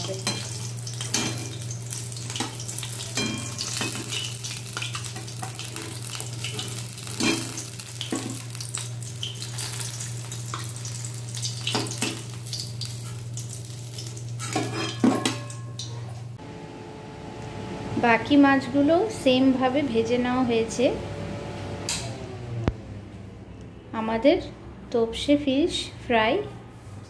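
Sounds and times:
fish sizzling in hot oil: 0.0s - 14.6s
low hum: 16.4s - 23.8s.

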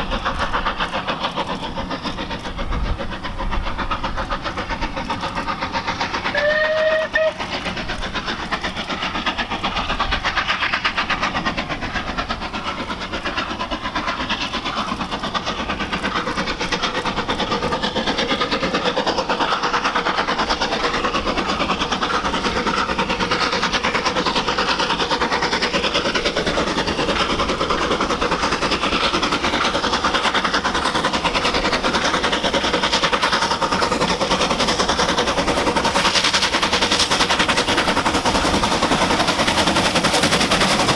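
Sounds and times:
steam locomotive exhaust beat: 0.0s - 40.9s
steam locomotive whistle: 6.3s - 7.5s.

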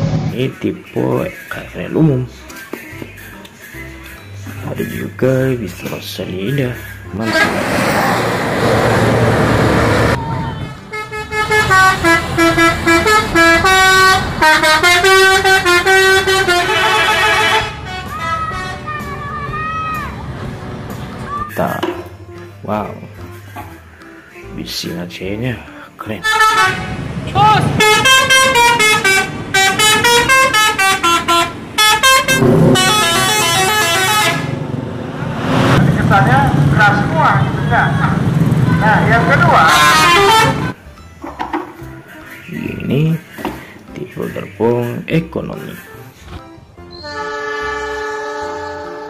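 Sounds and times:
multi-tone bus horn tune: 7.2s - 19.2s, 26.2s - 34.9s, 38.9s - 40.8s, 46.9s - 49.0s
soft horn tone: 10.6s - 18.8s, 26.2s - 27.0s, 27.8s - 34.6s, 47.0s - 49.0s
low rumble: 32.3s - 38.8s.

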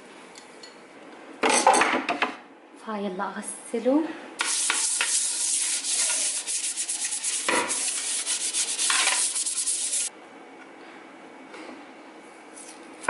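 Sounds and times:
brush scrubbing wooden bowl: 4.4s - 10.1s.

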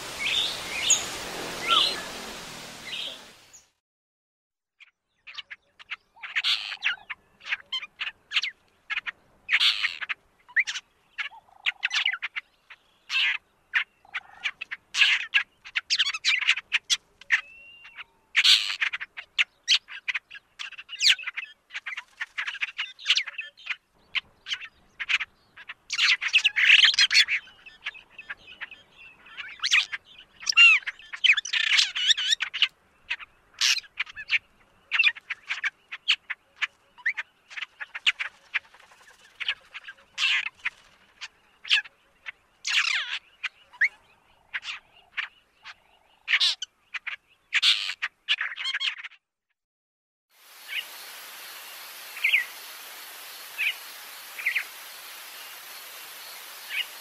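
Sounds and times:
bird chattering and whistling: 0.2s - 2.2s.

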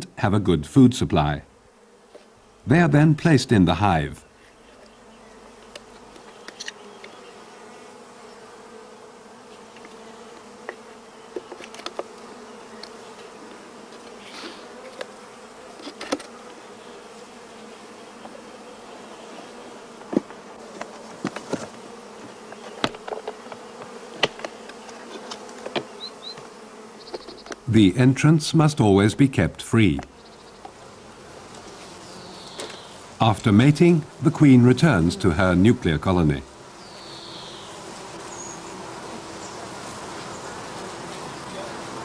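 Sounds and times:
bees buzzing: 0.0s - 42.0s
bee passing close: 0.5s - 42.0s
wooden boxes clicking and knocking: 20.0s - 26.0s.

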